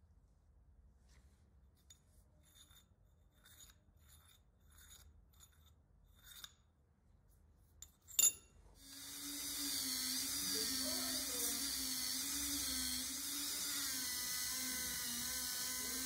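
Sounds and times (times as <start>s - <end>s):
file scraping on steel: 2.4s - 6.7s
metal clink: 7.8s - 8.6s.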